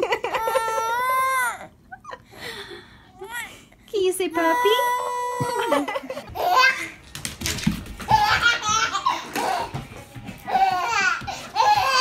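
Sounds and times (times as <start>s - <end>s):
baby laughing: 0.0s - 2.2s, 5.3s - 7.0s, 8.1s - 9.8s.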